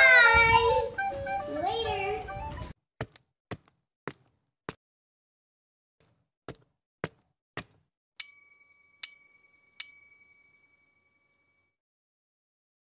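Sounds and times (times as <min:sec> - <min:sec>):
bright bell dings: 0:08.2 - 0:11.7.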